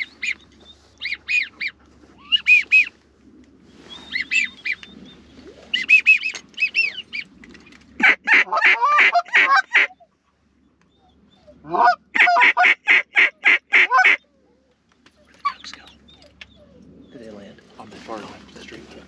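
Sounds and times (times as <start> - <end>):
goose call honks and clucks: 8.0 - 10.0, 11.6 - 14.2.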